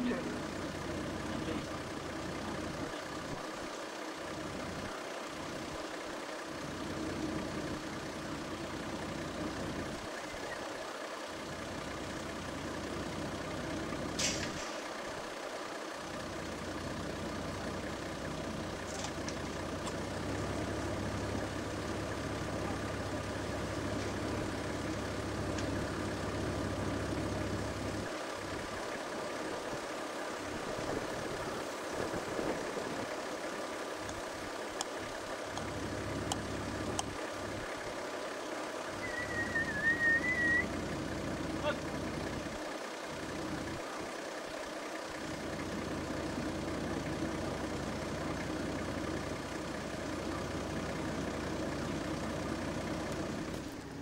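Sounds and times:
vehicle engine idling: 0.0s - 54.0s.

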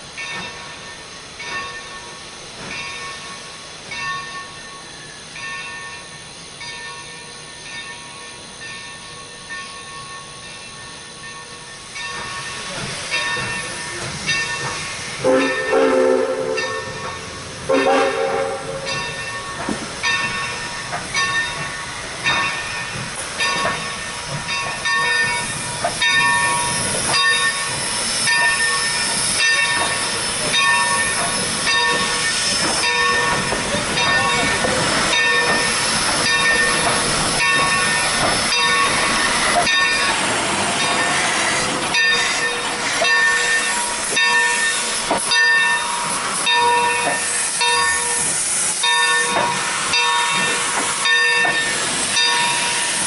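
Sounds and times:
locomotive bell ringing: 0.0s - 41.3s, 41.9s - 53.0s
steam hissing: 0.0s - 53.0s
steam locomotive rolling: 0.0s - 53.0s.

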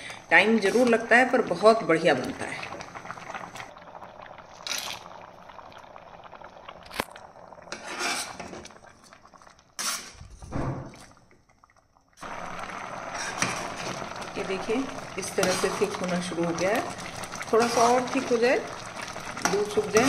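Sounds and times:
mixture bubbling: 0.0s - 20.0s
ladle scraping pot: 7.7s - 8.8s, 9.8s - 11.1s, 13.1s - 14.1s, 15.2s - 16.7s, 17.5s - 18.4s.

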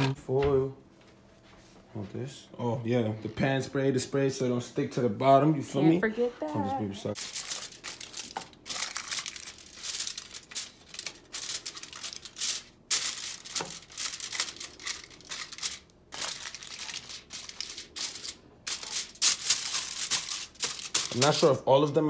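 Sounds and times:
aluminum foil crinkling: 7.1s - 21.7s.

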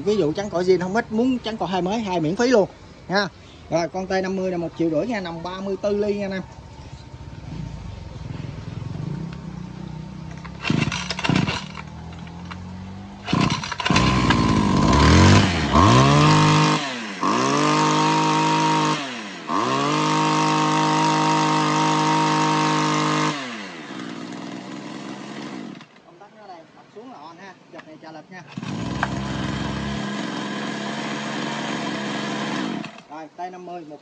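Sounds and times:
brush cutter engine revving: 7.1s - 26.1s, 28.5s - 33.2s
starter cord pulls: 10.3s - 15.1s, 28.5s - 30.2s.

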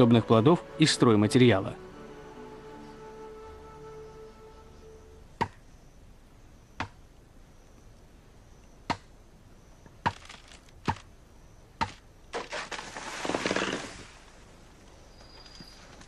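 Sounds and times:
bamboo being chopped: 5.4s - 5.6s, 6.8s - 7.0s, 8.9s - 9.1s, 11.8s - 13.0s.

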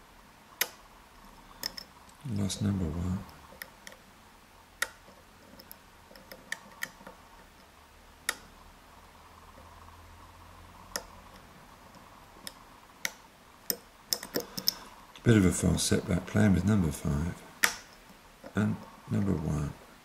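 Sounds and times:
lock pick clicking: 1.6s - 1.9s, 4.8s - 7.2s, 12.4s - 14.9s, 17.6s - 18.6s.

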